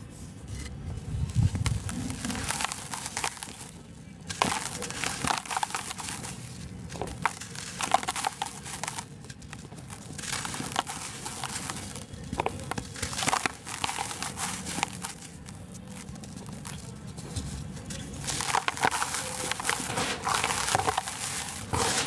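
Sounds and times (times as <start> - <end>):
cement lumps crumbling between fingers: 0.5 - 22.0
powder pouring hiss: 18.2 - 22.0.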